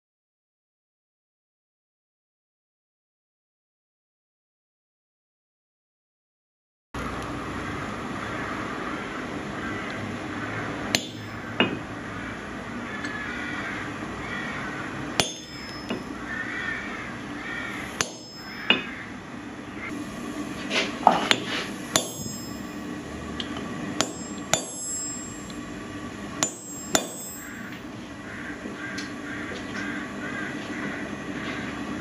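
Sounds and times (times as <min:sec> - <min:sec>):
hammer striking metal: 0:10.9 - 0:11.9, 0:15.2 - 0:16.2, 0:18.0 - 0:19.0, 0:21.0 - 0:22.8, 0:23.4 - 0:25.6, 0:26.4 - 0:27.8.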